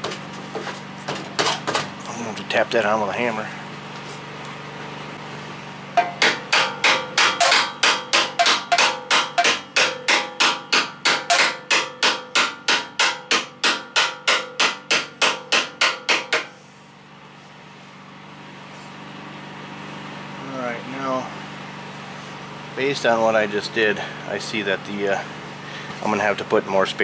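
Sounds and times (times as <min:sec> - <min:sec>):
hammer tapping metal: 0:06.0 - 0:16.5.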